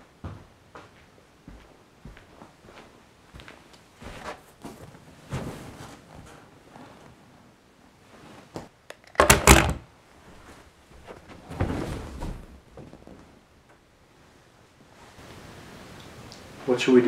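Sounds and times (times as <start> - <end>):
soft rustling shuffle: 0.2 - 8.7, 10.1 - 15.8
wooden thunks: 9.1 - 9.8.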